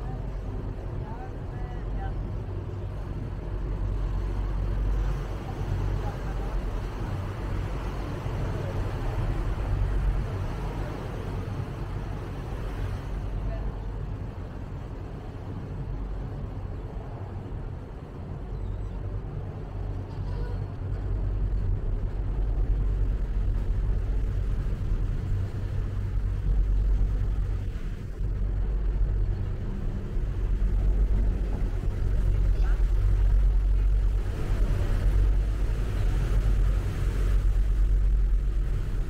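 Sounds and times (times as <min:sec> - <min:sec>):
boat diesel engine drone: 0:00.0 - 0:39.0
water noise: 0:00.0 - 0:39.0
wind noise: 0:14.1 - 0:39.0.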